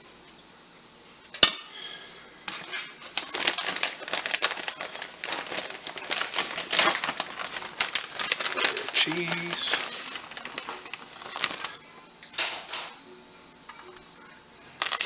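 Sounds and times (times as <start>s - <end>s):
plastic bag crinkling: 2.5s - 11.8s, 14.8s - 15.0s.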